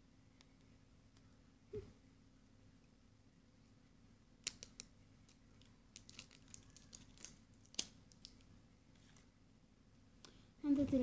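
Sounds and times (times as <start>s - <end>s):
plastic egg clicking: 4.4s - 5.4s, 6.0s - 8.4s.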